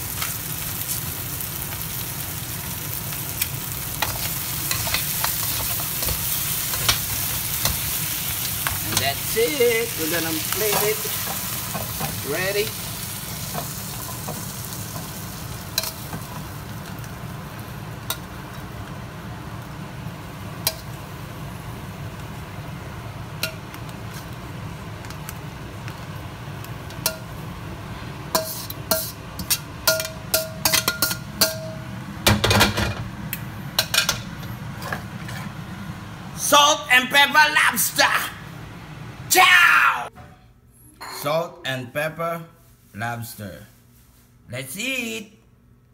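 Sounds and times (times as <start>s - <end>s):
hot wok hissing and sizzling: 0.0s - 23.0s
metal tongs clinking on wok: 15.7s - 16.3s, 28.3s - 31.8s.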